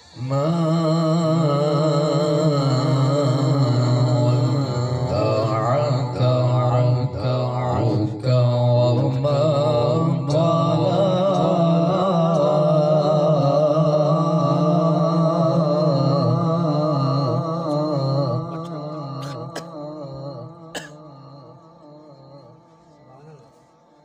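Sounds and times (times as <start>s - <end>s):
man reciting melodically: 0.0s - 23.7s.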